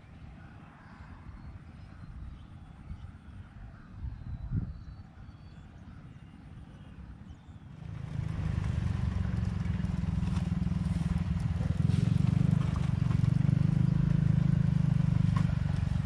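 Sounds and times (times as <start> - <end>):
small engine running: 7.7 - 16.0.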